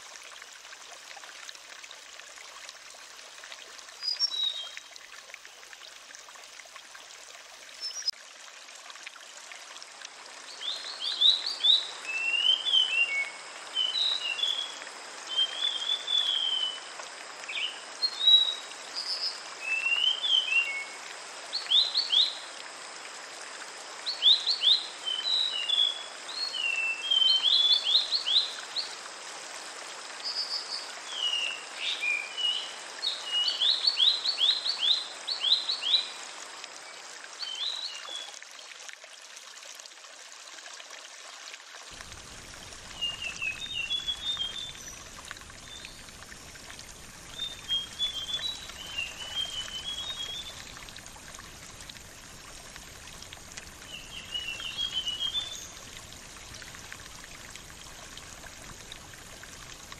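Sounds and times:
flowing water rushing: 0:00.0 - 0:59.9
songbird chirping: 0:42.8 - 0:46.2, 0:47.2 - 0:50.8, 0:53.8 - 0:55.9.

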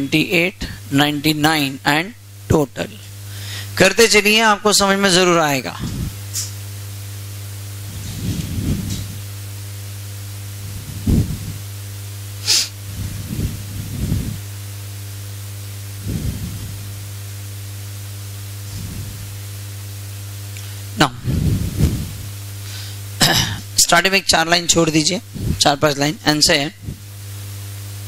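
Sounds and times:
electrical mains hum: 0:00.0 - 0:28.0
short sharp hiss: 0:12.4 - 0:14.4
soft low swells: 0:16.0 - 0:16.9, 0:18.7 - 0:19.4.

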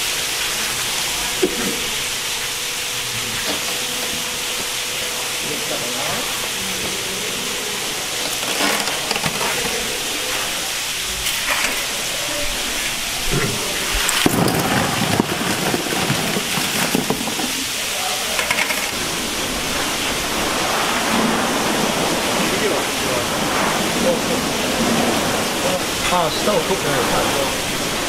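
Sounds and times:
oyster shells rattling in wire basket: 0:08.1 - 0:10.1, 0:14.0 - 0:18.9
steady rushing noise: 0:18.9 - 0:28.0.

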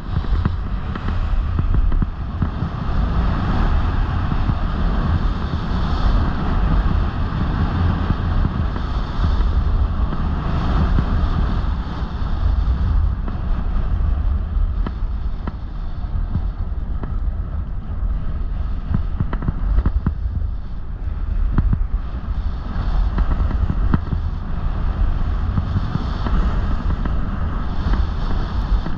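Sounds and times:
snowboard ticks and knocks: 0:00.0 - 0:05.6, 0:07.6 - 0:11.6, 0:12.5 - 0:17.8, 0:18.7 - 0:20.5, 0:21.4 - 0:22.0, 0:22.7 - 0:28.9
wind rushing over microphone: 0:00.0 - 0:28.9
snowboard edge scraping snow: 0:21.4 - 0:28.9.

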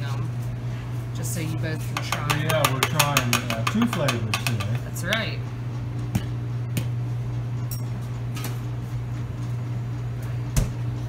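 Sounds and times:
low machine hum: 0:00.0 - 0:11.0
cups and mugs clinking: 0:02.0 - 0:05.1
mug knocking: 0:02.0 - 0:05.2.

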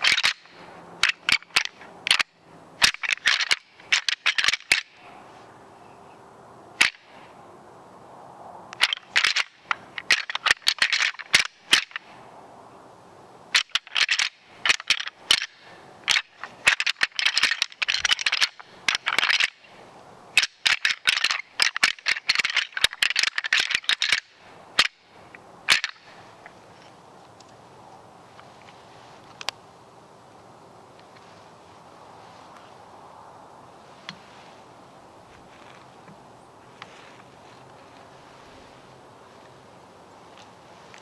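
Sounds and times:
deer rattling call clicking: 0:00.0 - 0:05.0, 0:06.8 - 0:07.1, 0:08.8 - 0:12.1, 0:13.5 - 0:19.7, 0:20.4 - 0:25.1, 0:25.7 - 0:26.6.

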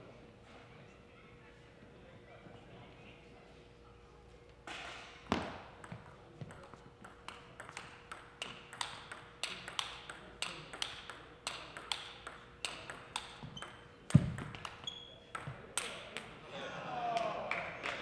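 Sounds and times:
table tennis ball clicking: 0:05.8 - 0:16.3.

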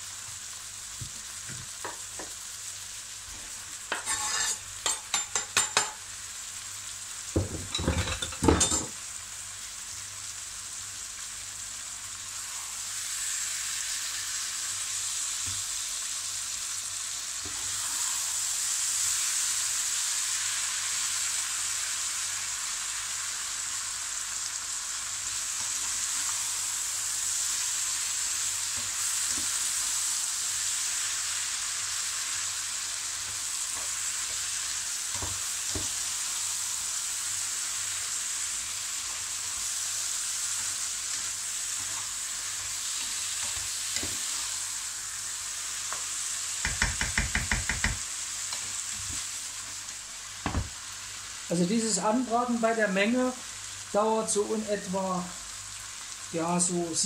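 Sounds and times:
vegetables sizzling in oil: 0:00.0 - 0:57.0
spatula scraping a pan: 0:03.9 - 0:05.9.

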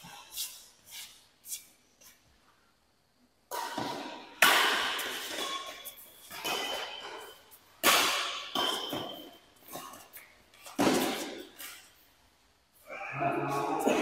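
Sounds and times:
rackets hitting shuttlecock: 0:03.5 - 0:11.7.

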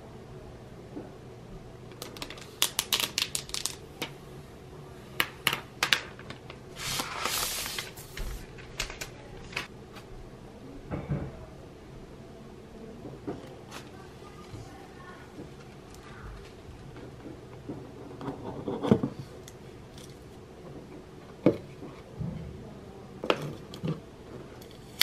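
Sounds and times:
paper wrap crackling: 0:01.9 - 0:04.1, 0:05.9 - 0:09.7
paper rustling: 0:06.3 - 0:09.7.

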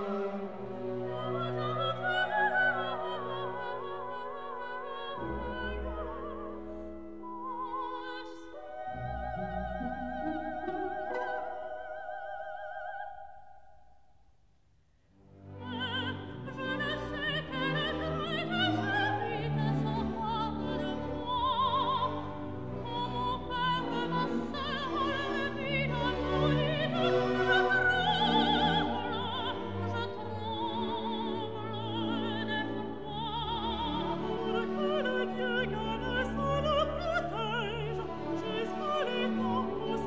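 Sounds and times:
orchestral accompaniment: 0:00.0 - 0:12.7
operatic singing with vibrato: 0:00.0 - 0:13.8, 0:15.4 - 0:40.0.

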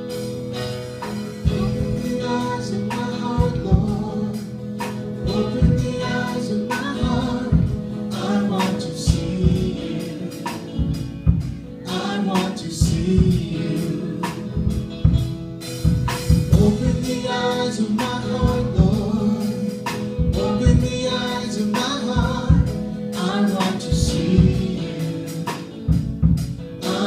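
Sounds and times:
electric guitar: 0:00.0 - 0:27.0
keyboard: 0:00.0 - 0:27.0
voices singing into microphones: 0:01.4 - 0:15.0, 0:16.4 - 0:27.0.

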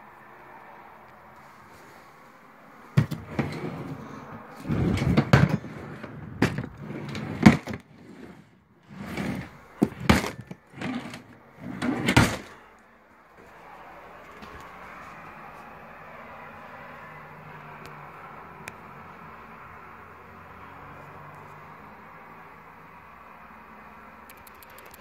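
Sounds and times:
drawer knocks: 0:03.0 - 0:03.7, 0:09.8 - 0:11.2, 0:11.8 - 0:12.5
drawer of lego rattling: 0:04.6 - 0:12.6.

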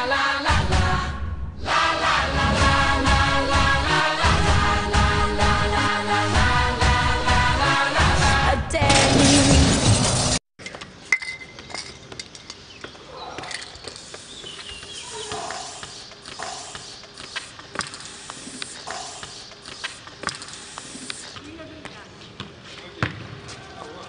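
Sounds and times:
music: 0:00.0 - 0:10.4
spray-paint can hissing: 0:13.8 - 0:21.4.

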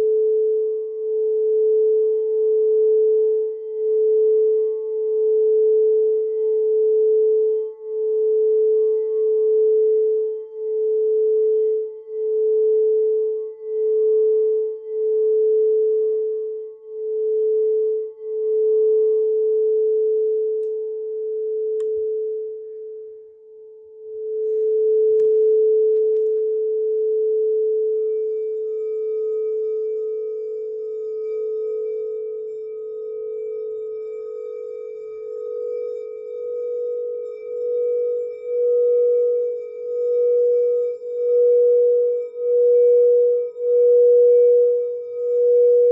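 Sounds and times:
singing bowl ringing: 0:00.0 - 0:45.9.

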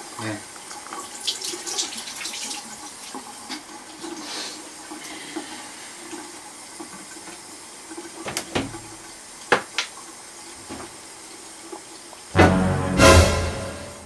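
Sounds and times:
tap water running into sink: 0:00.0 - 0:12.3
cabinet door clicks and knocks: 0:08.2 - 0:08.8.

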